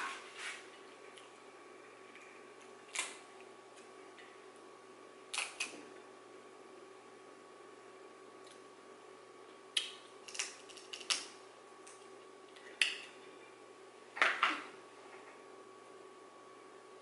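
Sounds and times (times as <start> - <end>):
crab shell cracking: 2.9 - 3.2, 5.3 - 5.8, 9.7 - 13.2.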